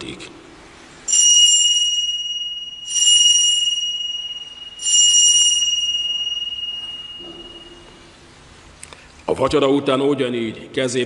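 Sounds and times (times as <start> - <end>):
altar bell ringing: 1.1 - 8.4.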